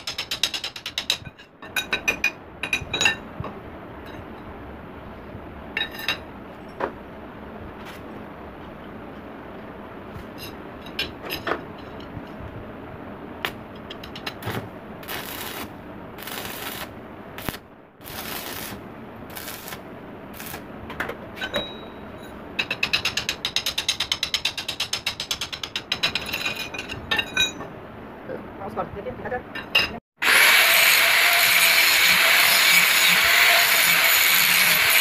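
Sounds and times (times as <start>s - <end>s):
arc welding crackling: 14.4s - 20.7s, 30.2s - 35.0s.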